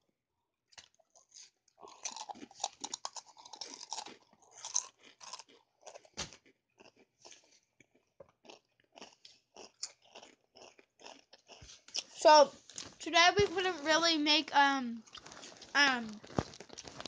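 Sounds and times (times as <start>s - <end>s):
person chewing crunchy chips: 0.8s - 12.8s, 15.0s - 17.0s.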